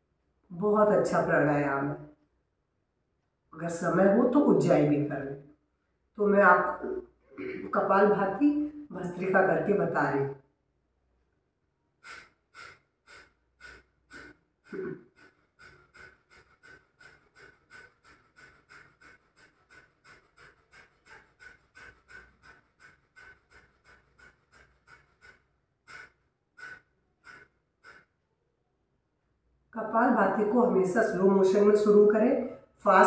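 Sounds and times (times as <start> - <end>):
forceful nasal exhalations: 12.0 - 24.6.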